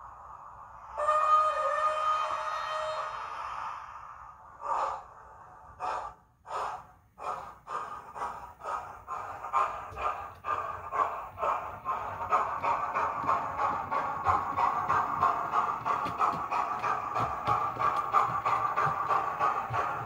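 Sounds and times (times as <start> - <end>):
model locomotive whistle: 0.9 - 3.4
steam exhaust chuffs: 4.6 - 20.0.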